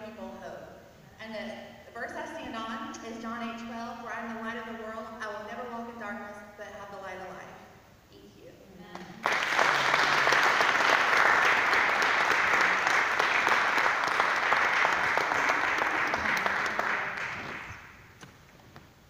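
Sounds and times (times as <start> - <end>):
congregation applauding: 9.1 - 18.2.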